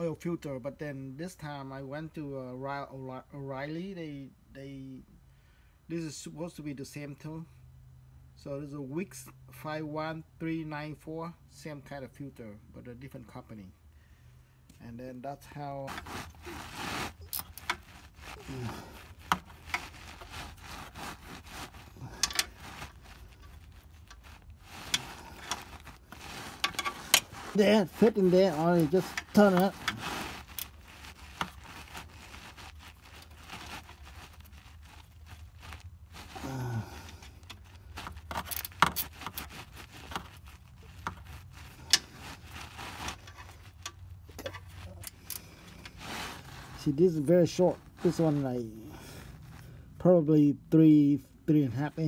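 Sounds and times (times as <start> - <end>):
wrench rubbing and scraping: 15.5 - 49.6.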